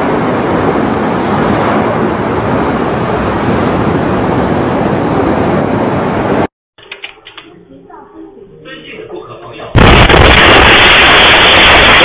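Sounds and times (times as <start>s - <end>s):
fire roaring: 0.0s - 6.5s, 9.8s - 12.0s.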